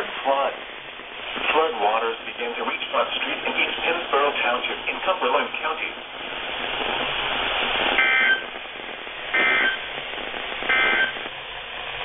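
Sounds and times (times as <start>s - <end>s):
radio speaker hiss: 0.0s - 12.0s
short buzzy data bursts: 8.0s - 8.5s, 9.3s - 9.9s, 10.7s - 11.3s.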